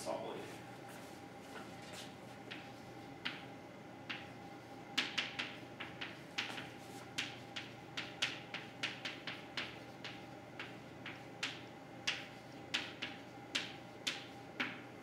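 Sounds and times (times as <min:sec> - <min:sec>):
faint steady hum: 0:00.0 - 0:15.0
chalk tapping on blackboard: 0:04.9 - 0:14.9.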